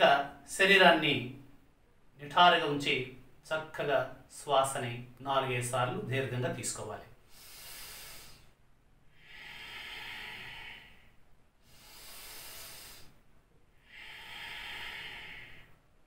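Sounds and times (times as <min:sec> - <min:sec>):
man breathing deeply: 0:07.2 - 0:16.0.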